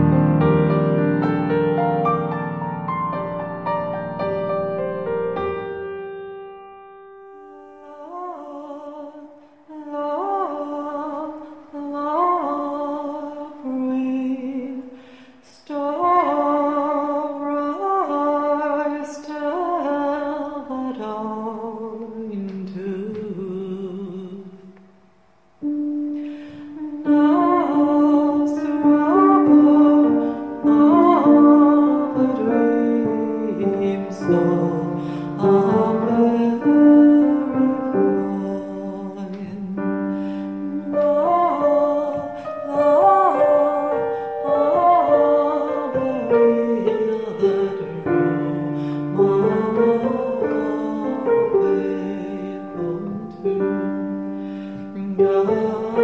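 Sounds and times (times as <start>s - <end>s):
piano: 0.0s - 56.0s
woman singing with vibrato: 7.5s - 24.8s, 25.8s - 56.0s.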